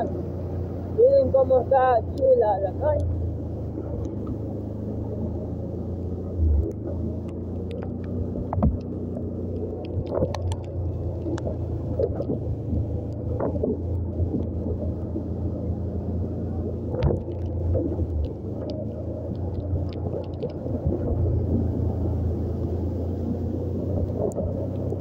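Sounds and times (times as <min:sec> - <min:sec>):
motorcycle engine humming: 0:00.0 - 0:25.0
sharp ticks: 0:06.6 - 0:08.9, 0:09.5 - 0:12.3, 0:16.9 - 0:21.0.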